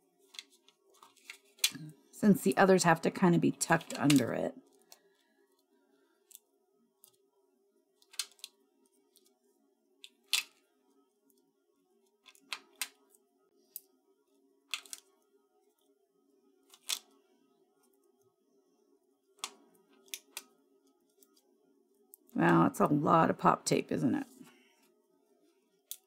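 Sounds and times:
faint steady hum: 0.0s - 26.0s
papery clicks and crackles: 0.2s - 1.9s, 3.6s - 5.3s, 8.0s - 9.4s, 12.1s - 13.9s, 14.7s - 15.9s, 16.6s - 17.2s, 19.3s - 21.4s.

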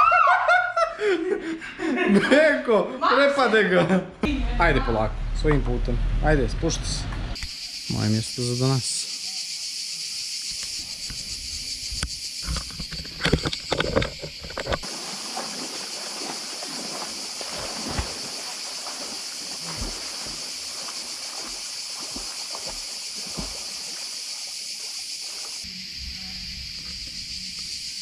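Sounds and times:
insects droning: 0.0s - 3.9s, 4.9s - 28.0s
river water splashing at bank: 14.0s - 25.7s.

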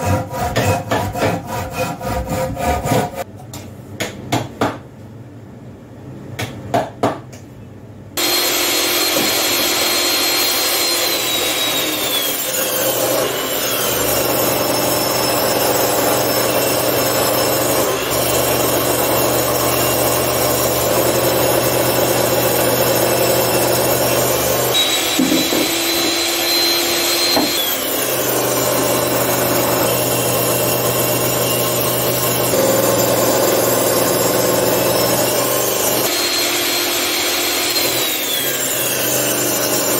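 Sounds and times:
table saw whining: 8.2s - 39.9s.

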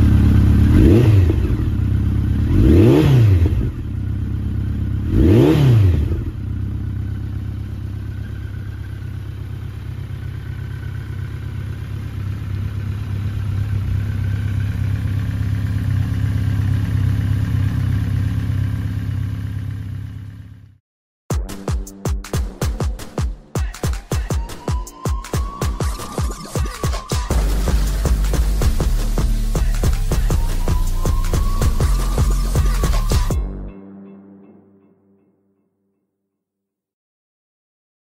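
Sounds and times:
motorcycle engine revving and idling: 0.0s - 20.8s, 25.4s - 33.5s
electronic music: 21.3s - 35.5s.

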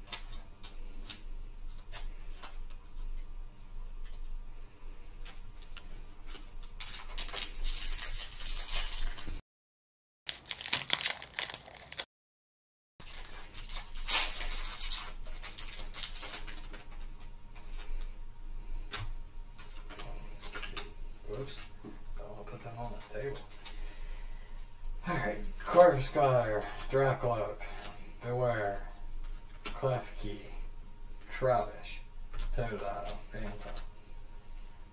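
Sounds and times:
foil wrapper crinkling and tearing: 5.7s - 9.4s, 10.3s - 12.1s, 13.0s - 18.1s.

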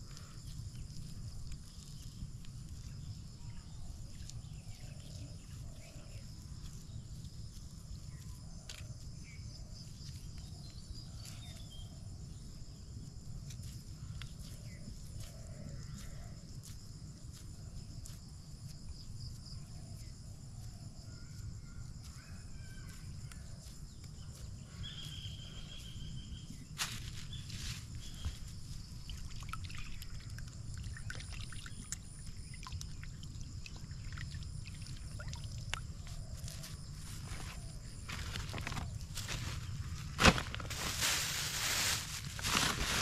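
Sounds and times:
insect chorus trilling: 0.0s - 43.0s.

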